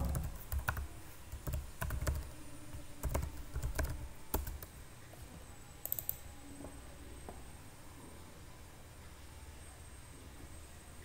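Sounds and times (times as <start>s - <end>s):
computer keyboard typing: 0.0s - 2.4s, 3.0s - 4.7s, 5.8s - 6.2s.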